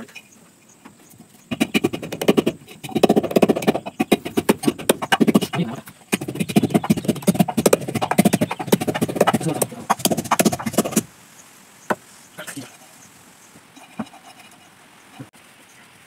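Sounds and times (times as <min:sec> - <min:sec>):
wooden pestle pounding in mortar: 0:01.5 - 0:11.1.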